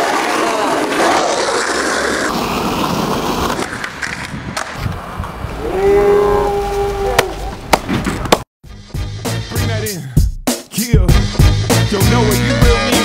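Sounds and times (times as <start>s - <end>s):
skateboard wheels rolling on concrete: 0.0s - 8.4s.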